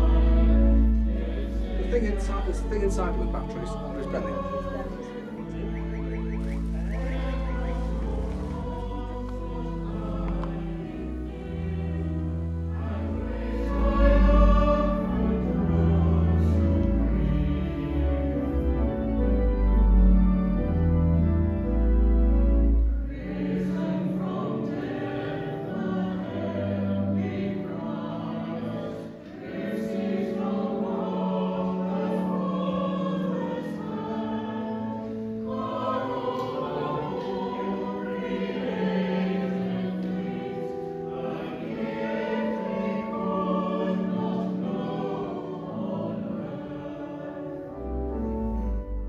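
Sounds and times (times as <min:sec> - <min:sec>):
choir singing: 0:00.0 - 0:49.0.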